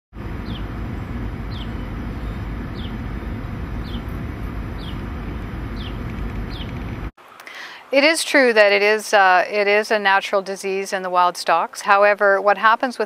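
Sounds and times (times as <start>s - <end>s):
low outdoor rumble: 0.1s - 7.1s.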